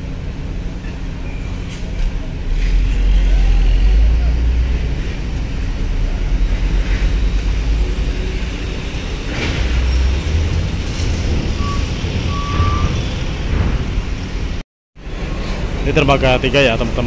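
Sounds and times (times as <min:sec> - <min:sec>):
truck engines rumbling: 0:00.0 - 0:17.0
short electronic beeps: 0:11.6 - 0:13.0.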